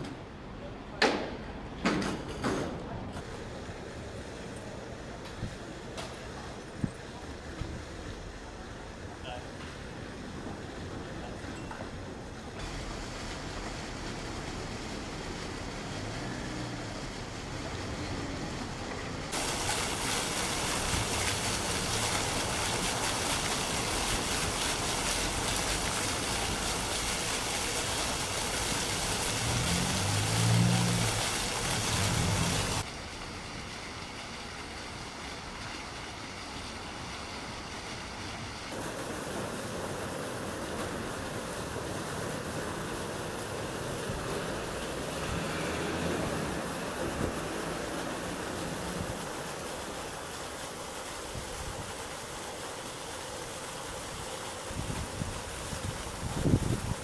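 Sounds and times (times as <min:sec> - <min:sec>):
outdoor street ambience: 0:00.0 - 0:57.0
fountain water splashing into basin: 0:03.2 - 0:57.0
low engine hum: 0:23.5 - 0:34.3, 0:39.2 - 0:50.3.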